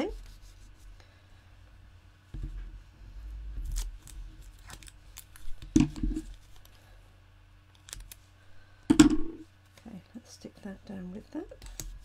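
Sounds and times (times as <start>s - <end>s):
crisp clicks and snips: 7.7s - 8.2s.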